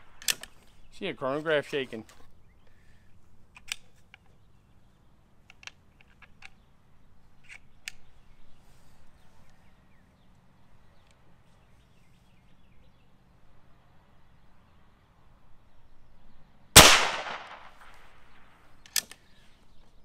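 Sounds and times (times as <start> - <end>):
air rifle bolt clicking: 0.2 - 0.6, 3.6 - 3.9, 16.8 - 18.0.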